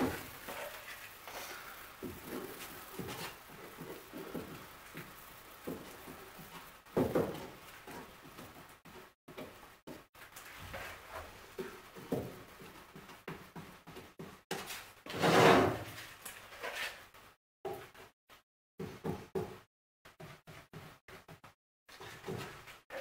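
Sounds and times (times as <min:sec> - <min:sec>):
wooden strip scraping plywood: 0:14.6 - 0:16.0.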